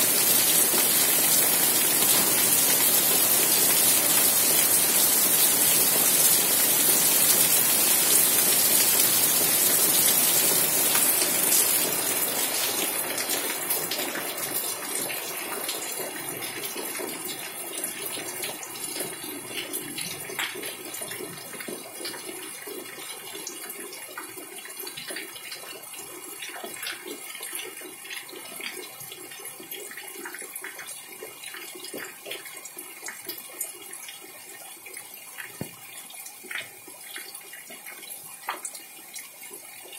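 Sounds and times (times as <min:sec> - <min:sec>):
heavy rain: 0:00.0 - 0:20.9.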